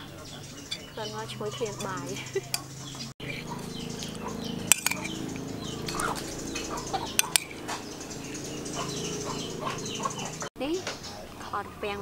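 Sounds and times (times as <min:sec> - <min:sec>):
birds chirping: 0:00.0 - 0:12.0
spoon clicking against plate: 0:04.0 - 0:06.2, 0:07.2 - 0:07.6.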